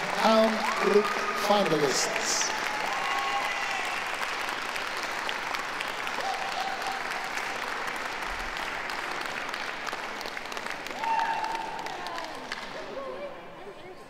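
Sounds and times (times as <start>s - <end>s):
crowd applauding: 0.0s - 13.6s.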